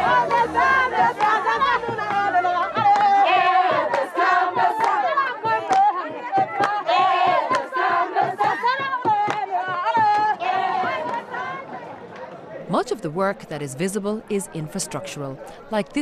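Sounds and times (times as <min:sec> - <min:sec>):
women singing and ululating: 0:00.0 - 0:12.0
hand claps: 0:01.0 - 0:11.3.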